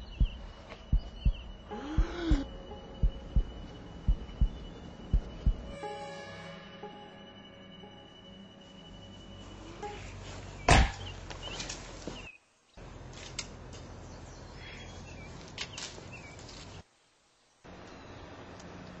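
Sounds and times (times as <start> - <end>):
sharp thud: 10.7 - 11.0
steady background hiss: 15.1 - 19.0.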